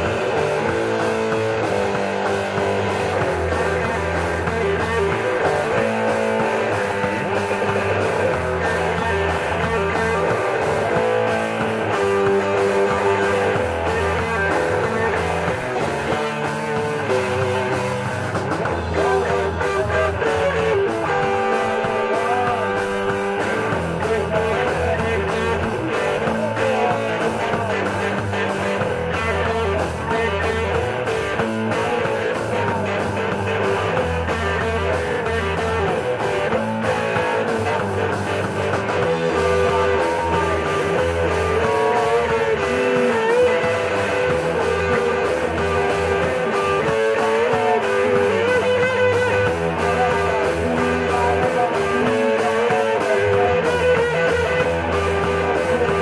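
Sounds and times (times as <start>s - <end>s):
rock band playing live: 0.0s - 56.0s.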